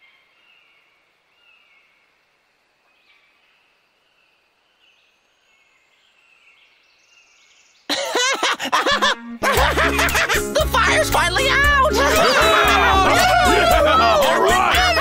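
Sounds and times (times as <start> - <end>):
faint forest ambience: 0.0 - 15.0
loud voice: 10.5 - 15.0.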